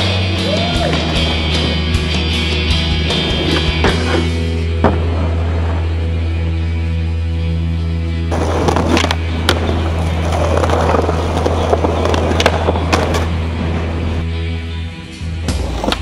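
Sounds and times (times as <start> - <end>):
background music with bass: 0.0 - 16.0
skateboard rolling on pavement: 0.7 - 5.2, 8.3 - 14.3, 15.4 - 16.0
skateboard clacks: 8.3 - 13.5.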